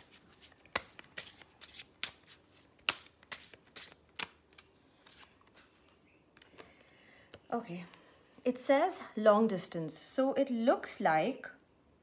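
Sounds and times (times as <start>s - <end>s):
cards being shuffled by hand: 0.0s - 7.5s.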